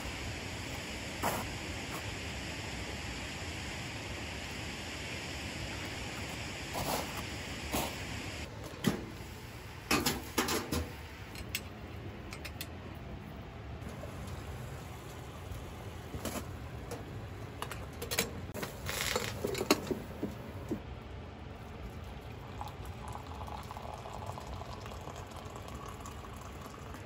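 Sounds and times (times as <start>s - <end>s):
coffee pouring into glass mug: 22.2s - 27.0s.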